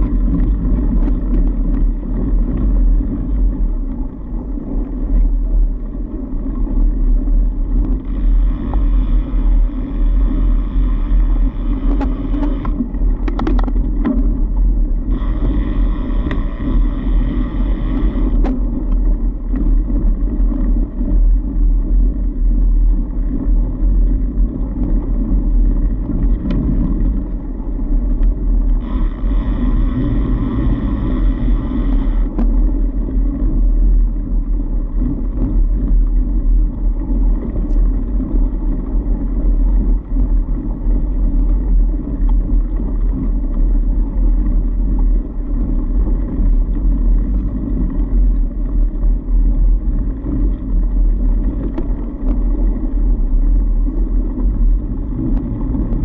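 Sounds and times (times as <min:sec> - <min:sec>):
bike tyres rumbling on snow: 0:00.0 - 0:56.0
wind on microphone: 0:00.0 - 0:56.0
high buzzing: 0:15.1 - 0:18.4, 0:28.8 - 0:32.4.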